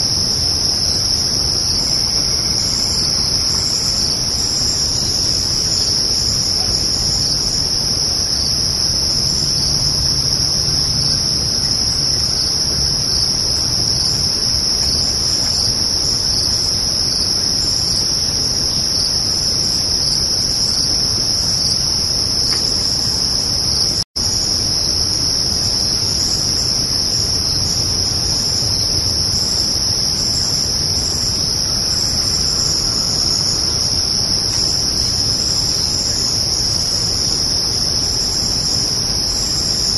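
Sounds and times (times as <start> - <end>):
crickets chirping: 0.0 - 39.9.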